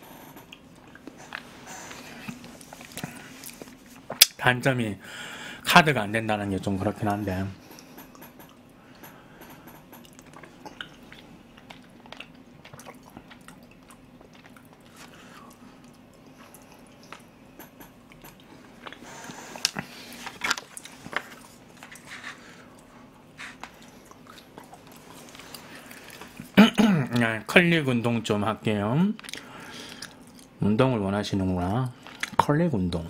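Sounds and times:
person chewing: 10.0 - 27.3, 29.2 - 30.6, 32.0 - 32.4.

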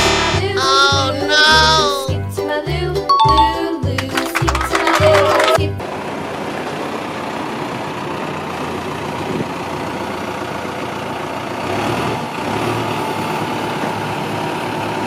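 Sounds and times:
diesel engine running: 4.8 - 15.0.

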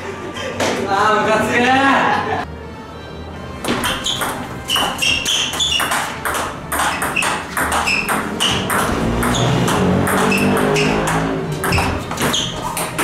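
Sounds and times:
table tennis ball pinging: 3.6 - 13.0.

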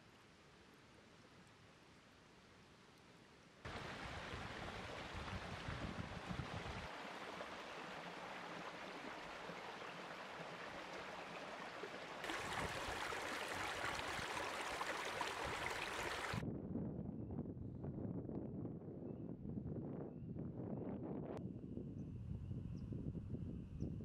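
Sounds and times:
creek water over rocks: 3.7 - 16.4
water spilling through cascade: 3.7 - 16.4.

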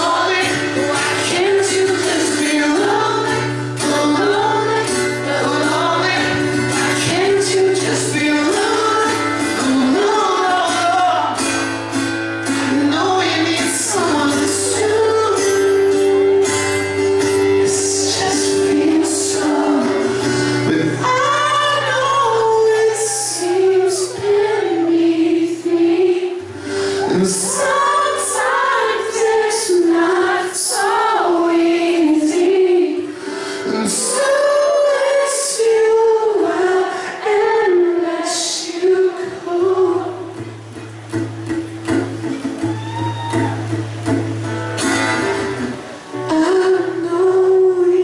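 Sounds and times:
high-pitched man singing: 0.0 - 11.5, 12.6 - 16.2, 17.6 - 26.4, 27.0 - 33.1, 33.7 - 40.3, 46.2 - 48.0
acoustic guitar: 0.0 - 48.0.

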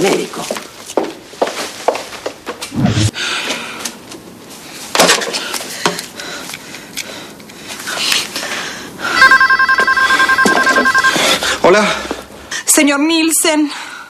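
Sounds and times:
telephone ringer trilling: 9.2 - 11.4.

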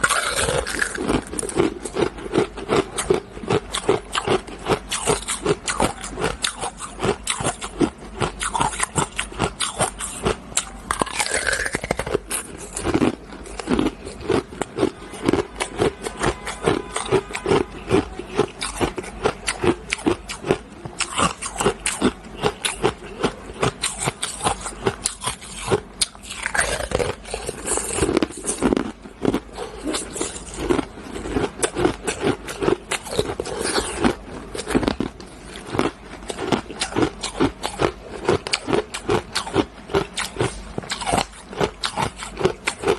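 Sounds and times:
ice being chewed: 0.0 - 42.9.

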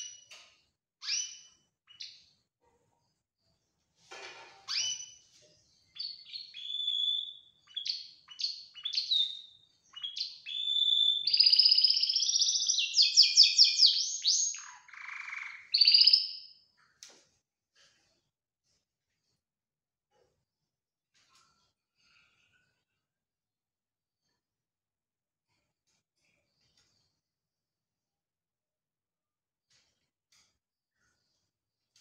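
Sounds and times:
canary singing: 1.0 - 2.2, 6.0 - 16.6.

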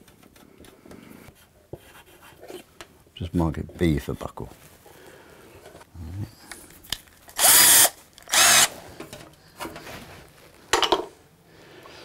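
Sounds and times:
power drill boring metal: 7.4 - 8.7.

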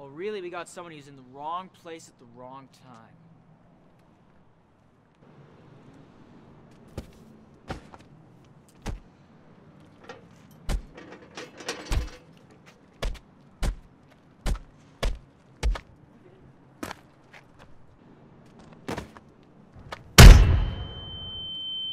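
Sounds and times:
punches landing heavy thuds: 20.2 - 21.0.

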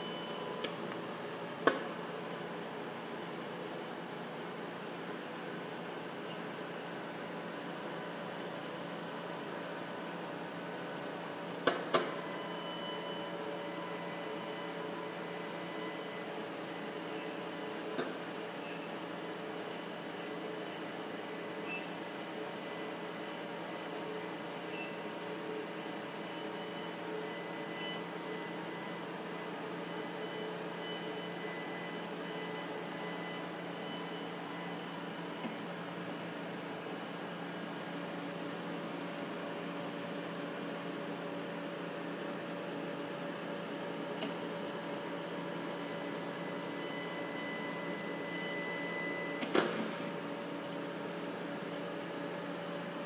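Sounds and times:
faint high whines: 0.0 - 0.8, 12.1 - 53.0
lab equipment hum and hiss: 0.0 - 53.0.

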